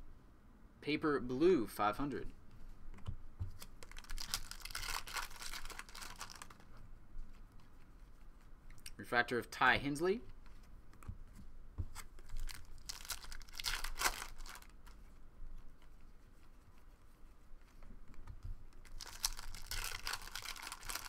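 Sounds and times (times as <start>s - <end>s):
cards being handled: 2.6s - 8.9s
foil wrapper crinkling and tearing: 3.8s - 6.6s, 12.2s - 15.0s, 18.8s - 21.0s.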